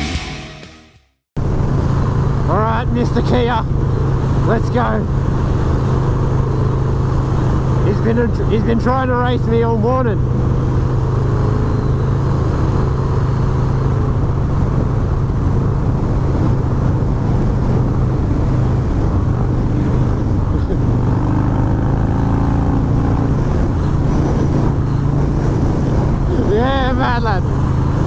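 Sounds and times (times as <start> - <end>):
wind rushing over microphone: 1.4 - 28.0
motorcycle engine pulling hard: 2.4 - 28.0.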